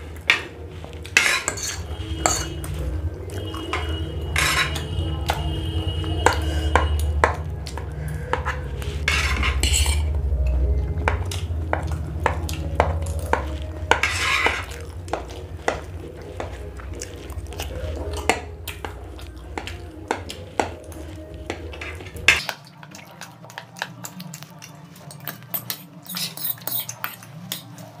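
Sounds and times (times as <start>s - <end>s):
steady low hum: 0.0s - 22.4s
forks clinking on plates: 1.1s - 2.8s, 3.5s - 5.5s, 8.3s - 10.1s.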